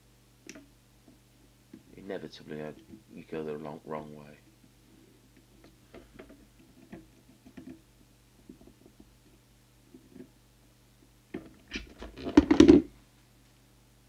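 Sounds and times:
low steady hum: 0:00.0 - 0:14.0
knocks and rustling: 0:11.3 - 0:12.9.

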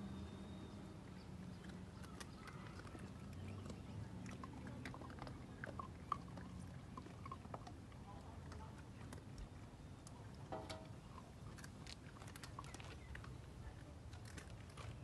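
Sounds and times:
puppies chewing and smacking: 0:01.0 - 0:15.0
clicks on metal bowl: 0:10.5 - 0:11.0.

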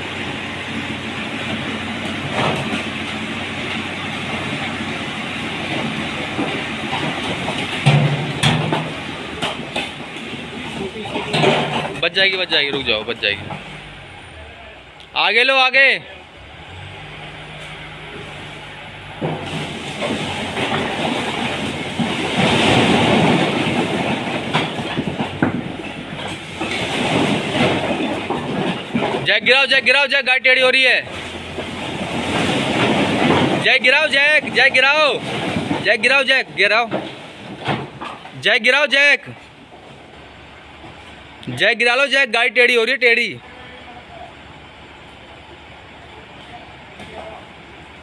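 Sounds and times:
bricks sliding and clattering: 0:01.4 - 0:12.1, 0:19.2 - 0:29.3, 0:31.2 - 0:36.1
loud knocks of bricks: 0:05.6 - 0:12.0, 0:19.2 - 0:29.5, 0:31.2 - 0:36.1, 0:36.8 - 0:38.4.

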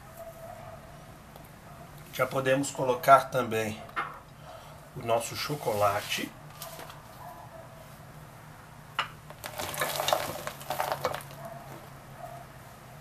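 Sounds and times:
chocolate chunks clattering into pan: 0:09.2 - 0:11.4.

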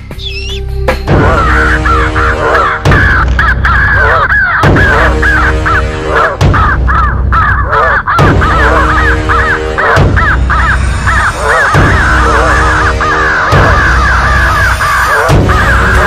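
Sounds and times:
background music sustained notes: 0:00.0 - 0:16.0
crows cawing: 0:01.2 - 0:16.0.

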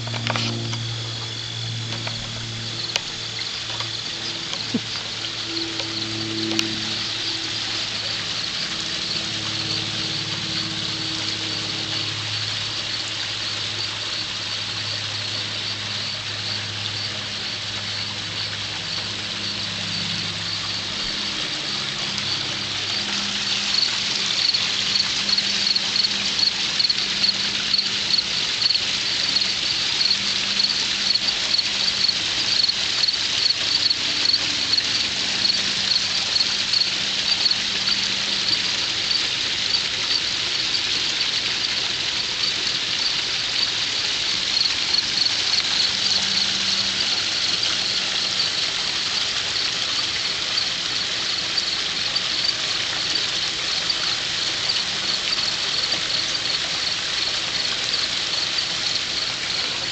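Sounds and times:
high-pitched pulsing chirr: 0:00.0 - 0:13.0
low hum: 0:00.0 - 0:13.0.

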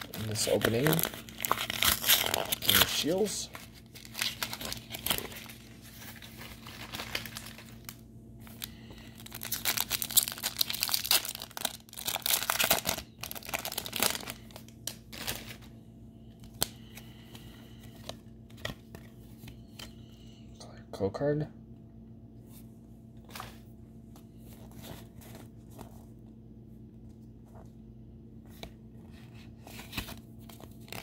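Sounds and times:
foil wrapper tearing and crinkling: 0:00.0 - 0:15.6
cards being handled: 0:00.0 - 0:15.7, 0:16.4 - 0:20.0, 0:28.4 - 0:31.0.

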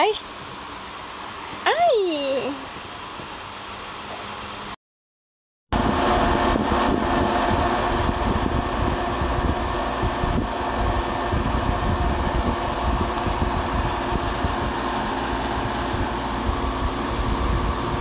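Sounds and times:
low rumble: 0:05.8 - 0:18.0
rushing air noise: 0:05.8 - 0:18.0.

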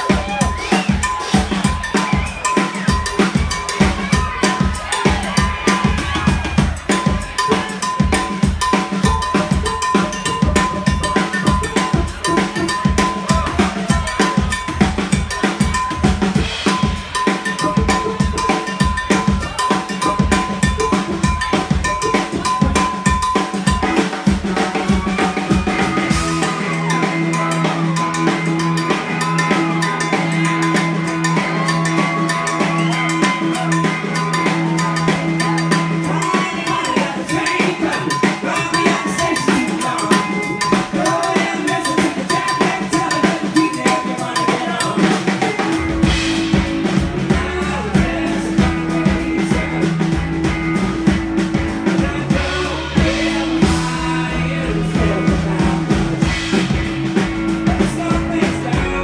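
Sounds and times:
drum kit groove with rimshots: 0:00.0 - 0:59.0
deep bass notes: 0:45.9 - 0:59.0.

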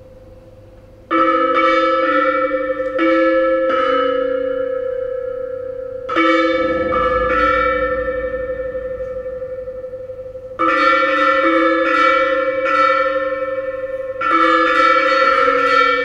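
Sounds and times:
bell-like metal percussion strikes: 0:01.1 - 0:16.0
steady held tone: 0:04.3 - 0:16.0
low rumble: 0:06.2 - 0:11.2.

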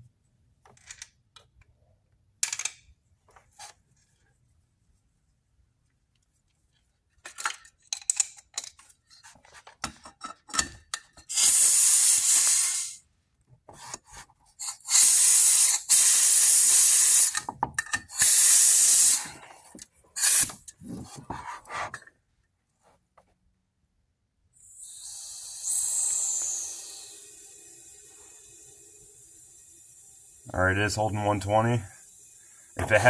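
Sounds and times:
metal tools clicking and rattling: 0:07.2 - 0:08.9, 0:17.4 - 0:18.2
compressed air hissing: 0:11.3 - 0:13.0, 0:14.6 - 0:17.5, 0:18.1 - 0:19.5, 0:20.2 - 0:20.7, 0:24.6 - 0:33.0.

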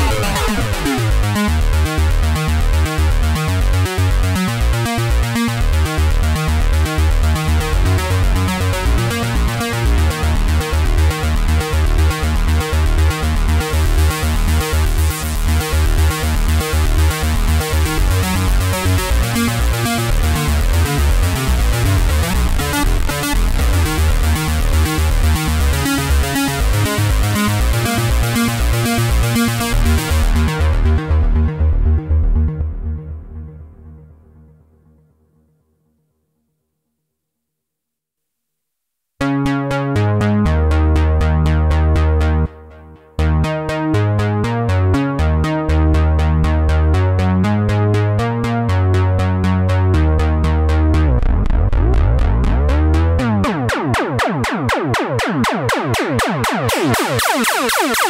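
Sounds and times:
acid synth pattern: 0:00.0 - 0:03.5, 0:04.2 - 0:31.9, 0:50.9 - 0:58.0
heavy synth bass: 0:00.0 - 0:34.4, 0:39.7 - 0:58.0.

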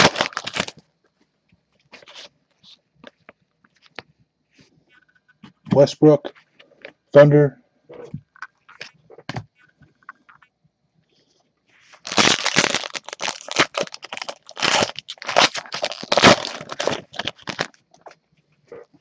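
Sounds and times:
foil wrapper tearing and crinkling: 0:00.0 - 0:00.8, 0:12.0 - 0:18.0.

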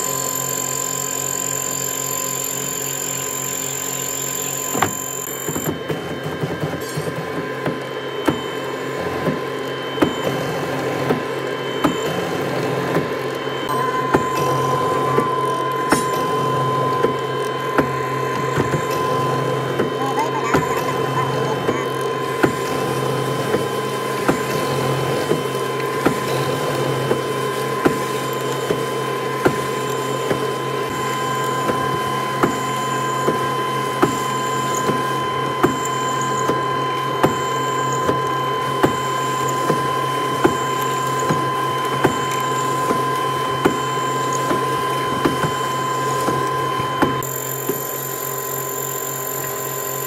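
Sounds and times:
mortising machine motor hum: 0:00.0 - 0:50.0.

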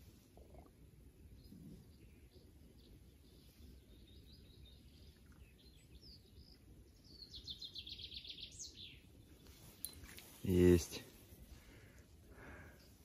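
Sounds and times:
birds chirping: 0:00.4 - 0:13.0.

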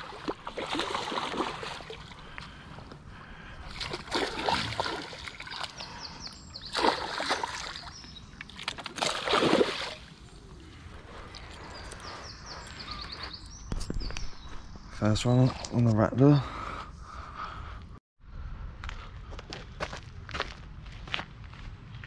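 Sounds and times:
water splashing and sloshing: 0:00.0 - 0:10.4.

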